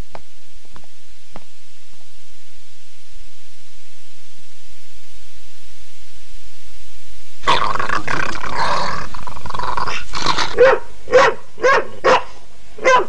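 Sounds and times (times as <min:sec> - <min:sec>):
faint hiss: 0:00.0 - 0:12.8
dog growling and snarling: 0:07.4 - 0:13.0
dog barking: 0:10.2 - 0:13.0.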